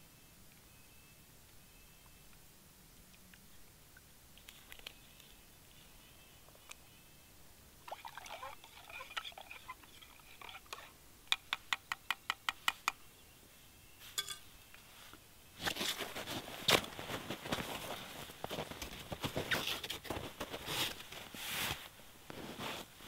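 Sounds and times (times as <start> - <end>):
spoon stirring and scraping in mug: 8.0 - 11.6, 14.0 - 14.5
rustling: 14.0 - 23.0
spoon tapping mug: 14.2 - 14.4.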